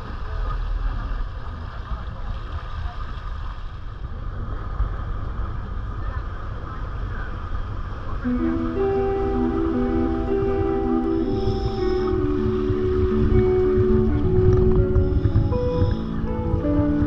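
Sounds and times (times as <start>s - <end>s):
wake rushing along hull: 0.0s - 17.0s
wind on microphone: 0.0s - 17.0s
boat engine running: 3.8s - 17.0s
music: 8.2s - 17.0s.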